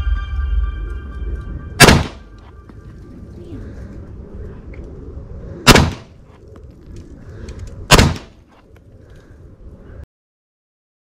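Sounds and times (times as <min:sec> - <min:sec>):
pistol shots: 0:01.8 - 0:02.2, 0:05.6 - 0:06.1, 0:07.9 - 0:08.4.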